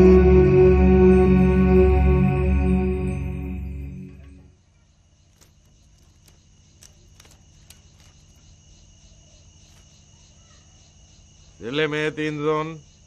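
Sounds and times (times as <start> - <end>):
low hum: 0.0 - 4.6
crickets trilling: 3.0 - 13.0
faint ticks: 5.3 - 8.6.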